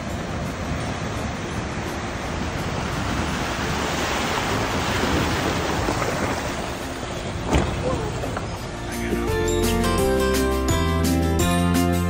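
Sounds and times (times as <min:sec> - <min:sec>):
water splashing as vehicle fords: 0:00.0 - 0:09.4.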